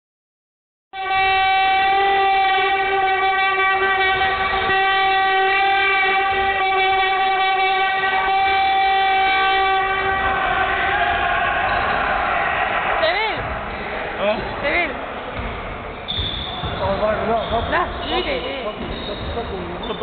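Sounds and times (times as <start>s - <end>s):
metal horn long note: 1.0s - 12.0s.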